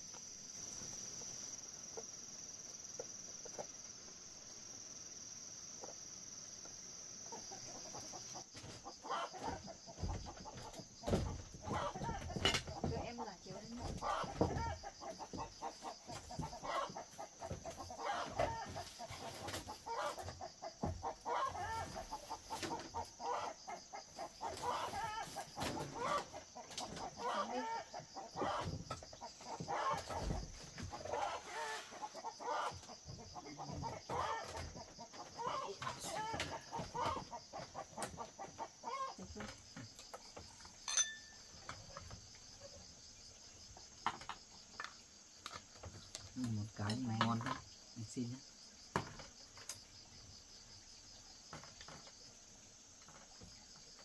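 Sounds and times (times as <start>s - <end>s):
high drone of insects: 0.0s - 54.0s
chickens clucking: 7.1s - 46.0s.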